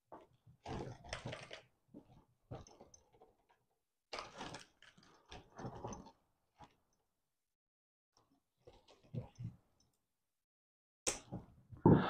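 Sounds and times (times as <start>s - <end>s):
wires and plastic connectors rustling: 0.6s - 3.5s, 4.1s - 6.1s.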